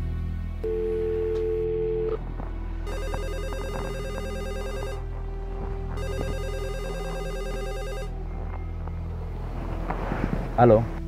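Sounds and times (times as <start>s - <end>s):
telephone ringing electronic trill: 2.9s - 5.0s, 6.0s - 8.1s.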